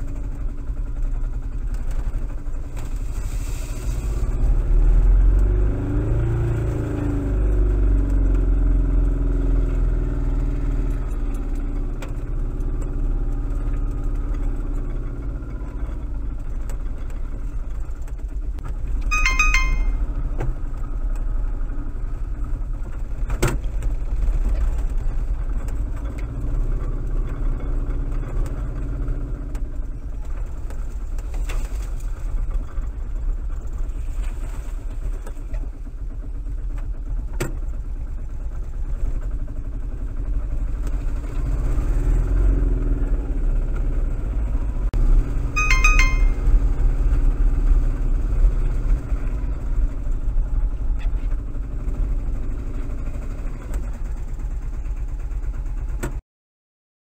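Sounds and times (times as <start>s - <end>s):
vehicle engine running: 0.0s - 19.0s, 19.6s - 56.2s
short high beeps: 19.1s - 20.0s, 45.6s - 46.5s.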